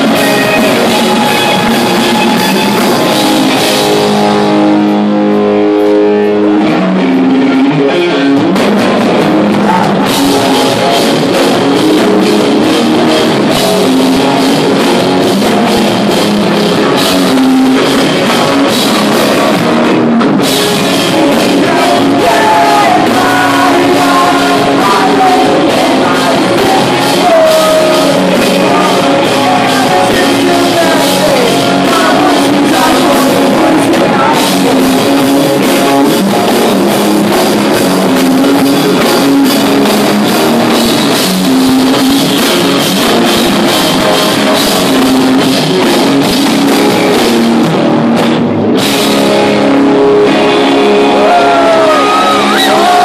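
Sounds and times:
pop punk band playing: 0:00.0 - 0:53.0
person singing: 0:09.5 - 0:14.4, 0:20.7 - 0:40.3.

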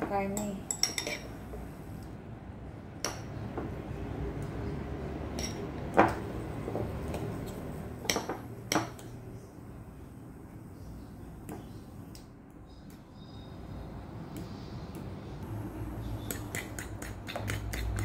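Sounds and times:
utensil clinking against ceramic bowl: 0:00.2 - 0:01.4.

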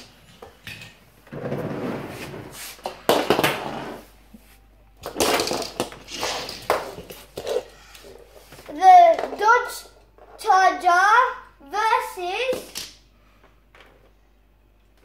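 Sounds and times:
toy cars knocking on hard floor: 0:05.0 - 0:07.7.

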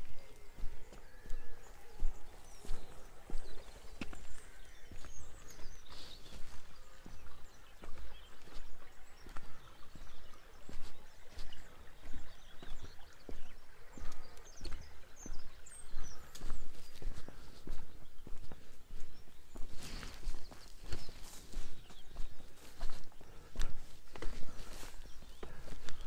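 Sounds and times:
faint bird chirps: 0:00.0 - 0:26.0
footsteps walking: 0:00.0 - 0:26.0.

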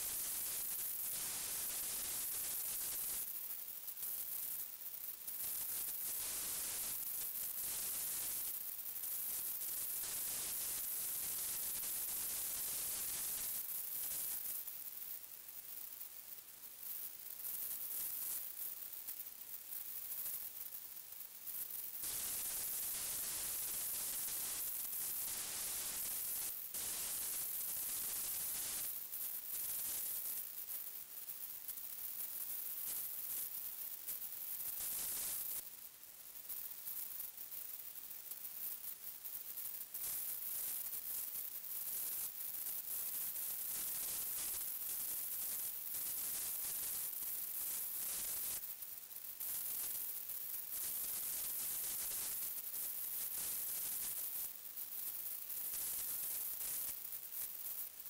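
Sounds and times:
static-like hiss: 0:00.0 - 0:58.0.

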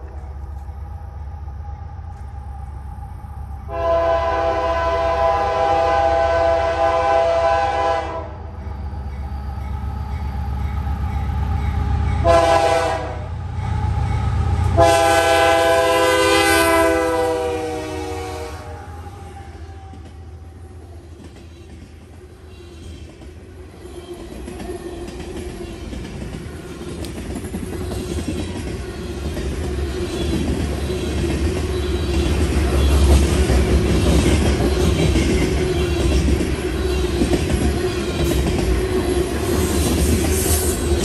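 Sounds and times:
diesel locomotive rumble: 0:00.0 - 0:41.0
train air horn blasts: 0:03.7 - 0:08.4, 0:12.2 - 0:13.3, 0:14.7 - 0:20.0.

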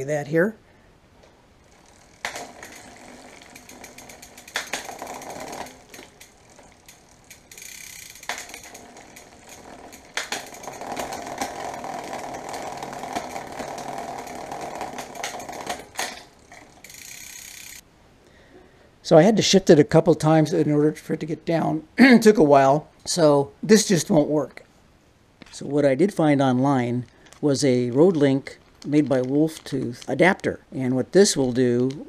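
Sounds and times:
bicycle chain rattling whir: 0:01.6 - 0:17.8.

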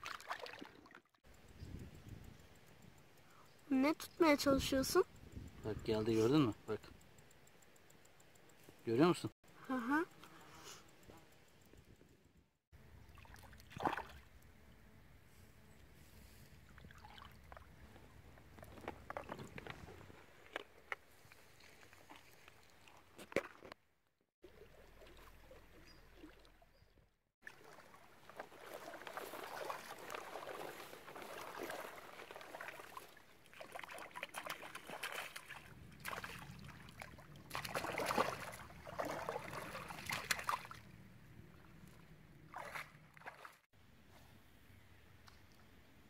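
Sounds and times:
water sloshing and splashing: 0:00.0 - 0:01.2, 0:13.0 - 0:14.4, 0:16.6 - 0:17.8, 0:18.5 - 0:23.8, 0:24.5 - 0:26.7, 0:27.4 - 0:43.7.

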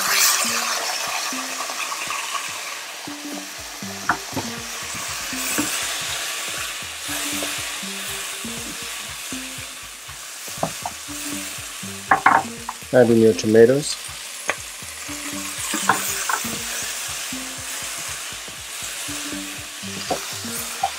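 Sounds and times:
vegetables sizzling in a wok: 0:00.0 - 0:20.9
spatula scraping and tapping pan: 0:15.6 - 0:16.8.

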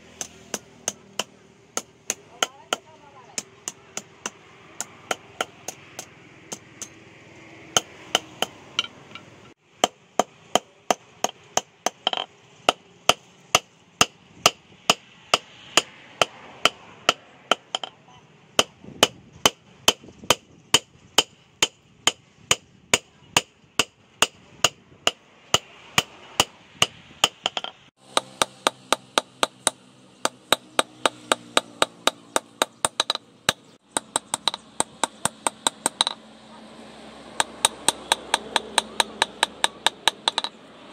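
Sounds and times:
hammer striking metal on anvil: 0:07.8 - 0:18.0, 0:18.6 - 0:36.2, 0:37.4 - 0:40.6.

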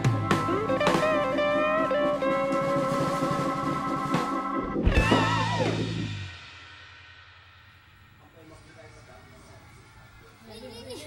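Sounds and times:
music with guitar and drums: 0:00.0 - 0:07.2.

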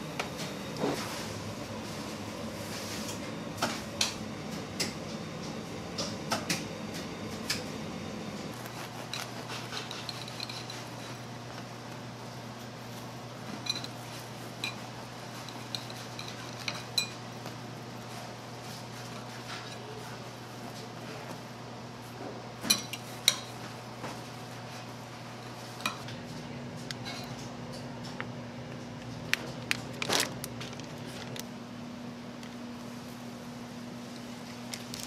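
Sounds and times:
kitchen equipment hum: 0:00.0 - 0:35.0
kitchen utensils clinking: 0:09.0 - 0:11.2, 0:13.5 - 0:17.3, 0:22.6 - 0:23.6.

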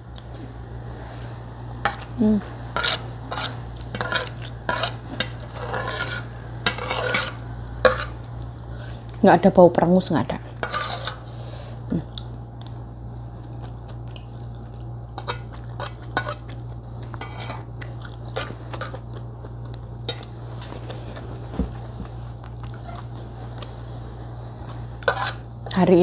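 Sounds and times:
spoon scraping a plate: 0:02.7 - 0:08.2, 0:10.6 - 0:11.3, 0:15.2 - 0:17.7, 0:24.6 - 0:25.5
person chewing: 0:11.9 - 0:23.9.

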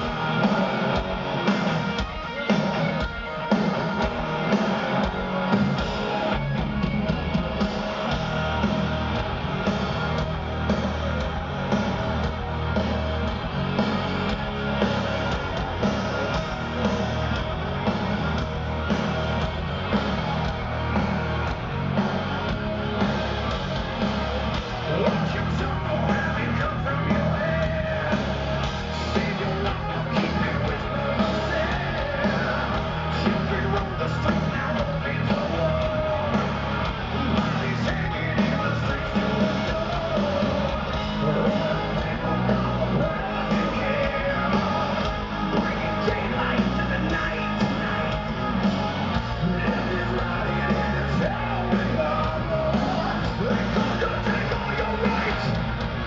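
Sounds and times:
heavy metal band playing live: 0:00.0 - 0:56.0
person singing: 0:24.8 - 0:55.6.

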